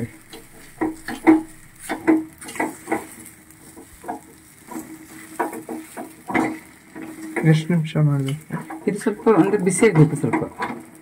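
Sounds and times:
metal spoon scraping dough in pan: 0.3 - 7.5.

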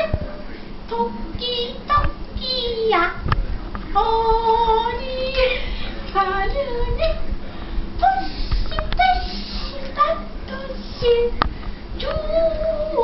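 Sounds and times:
high voice singing wordless melody: 0.0 - 3.3, 3.9 - 7.4, 8.0 - 11.4, 12.0 - 13.0.

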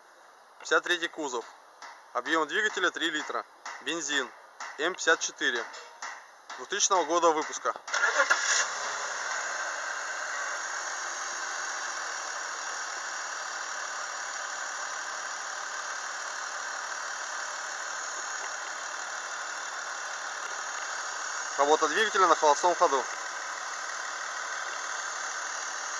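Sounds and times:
car engine idling: 7.8 - 25.9.

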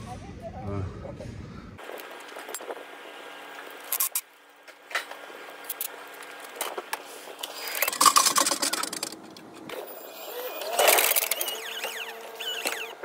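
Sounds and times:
mechanical noise: 1.8 - 13.0.

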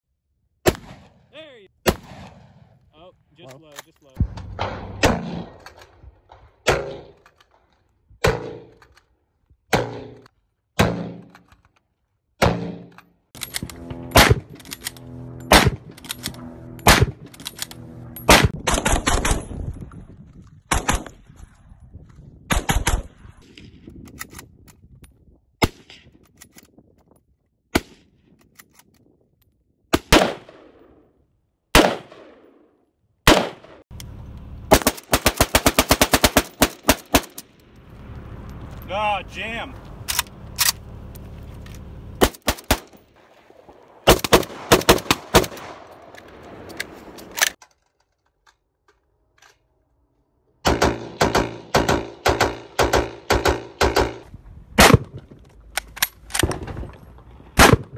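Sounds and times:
rifle shots: 0.6 - 2.8, 4.2 - 7.3, 9.7 - 11.4, 12.4 - 19.5, 29.9 - 30.8, 31.7 - 32.6, 33.2 - 33.8, 34.7 - 37.5, 42.2 - 46.4, 50.6 - 54.2, 54.8 - 55.2, 57.6 - 57.9.

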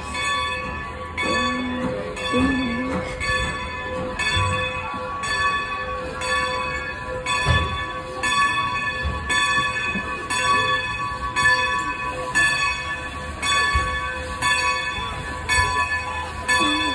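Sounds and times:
locomotive bell ringing: 0.0 - 16.9
steam locomotive moving slowly: 0.0 - 16.9.

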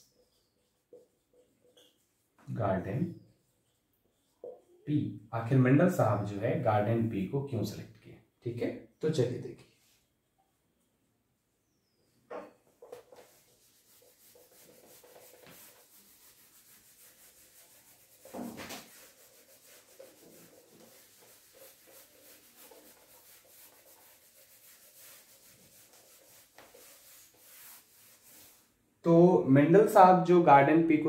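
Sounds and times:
cloth rubbing whiteboard: 0.0 - 4.9, 12.7 - 28.8.

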